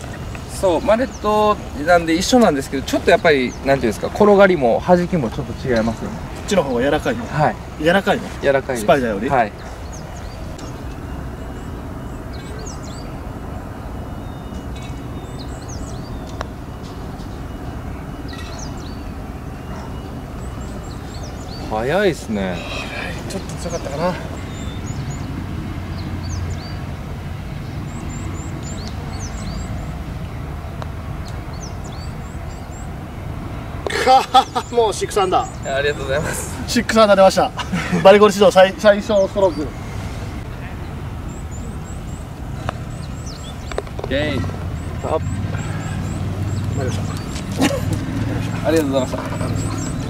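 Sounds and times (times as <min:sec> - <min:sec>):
small birds chirping: 0:00.0 - 0:50.0
putter tapping golf ball: 0:43.6 - 0:44.1.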